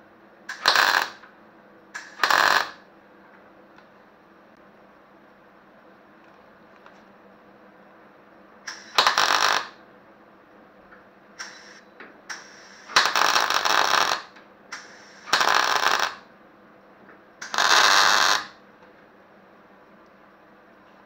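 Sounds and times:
welder arc crackling: 0.5 - 1.2, 2.0 - 2.8, 8.7 - 9.8, 11.4 - 16.2, 17.4 - 18.5.

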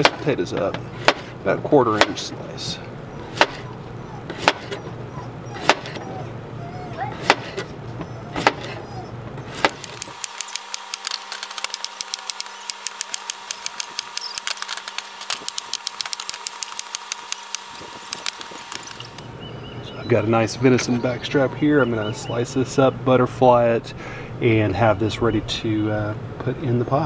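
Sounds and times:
knife slicing potato on board: 1.0 - 1.3, 3.3 - 3.6, 4.3 - 4.8, 5.6 - 6.0, 7.2 - 7.6, 9.5 - 10.0
fast light clicks: 9.7 - 19.3.

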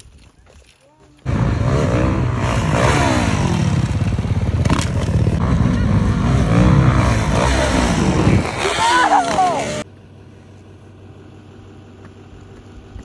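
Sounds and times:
dirt bike engine revving: 1.2 - 9.8.

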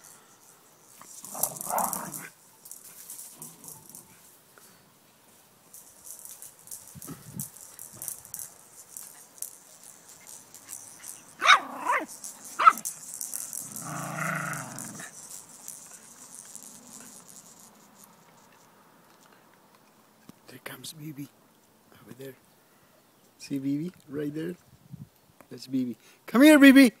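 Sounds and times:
dog yapping: 11.4 - 12.8.

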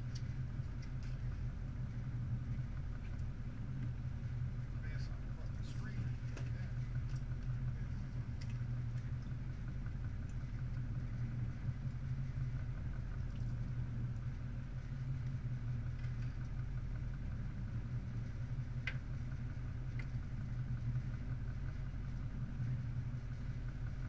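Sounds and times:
boat engine droning: 0.0 - 24.0.

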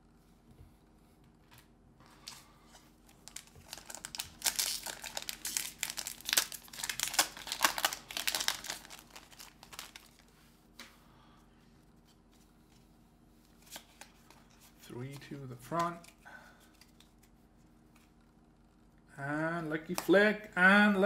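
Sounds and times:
foil wrapper crinkling: 3.1 - 10.3.

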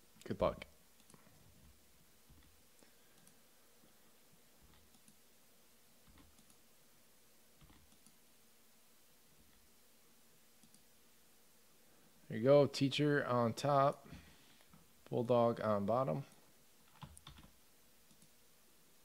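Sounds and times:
computer mouse clicks: 1.0 - 1.5, 2.3 - 3.4, 4.6 - 5.2, 6.0 - 6.6, 7.6 - 8.2, 10.6 - 10.9, 16.9 - 18.4.

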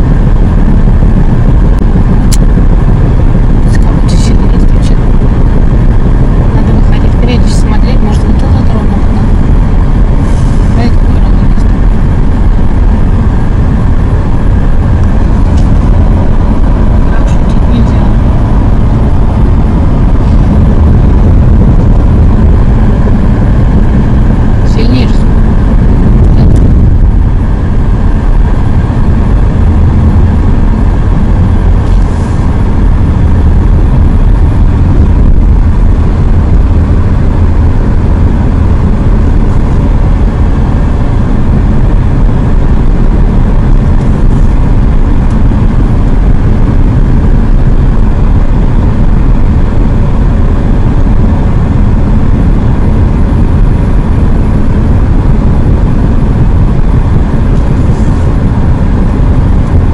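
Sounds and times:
car cabin road rumble: 0.0 - 59.9.

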